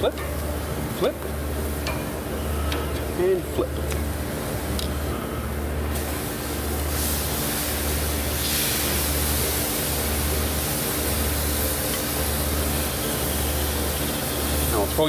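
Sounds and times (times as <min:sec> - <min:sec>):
food sizzling on hot grill: 0:05.9 - 0:15.0.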